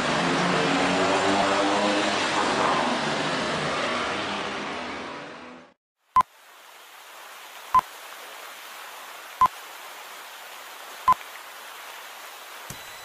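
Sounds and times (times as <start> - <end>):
short electronic beeps: 12.7 - 13.0.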